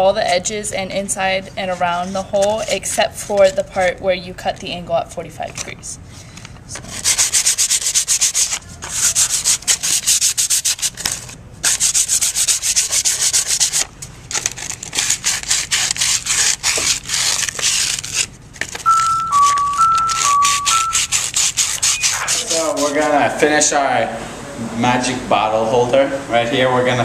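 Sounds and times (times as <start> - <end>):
sandpaper rubbing on wood: 6.8 - 13.9, 14.9 - 18.3, 19.3 - 23.4.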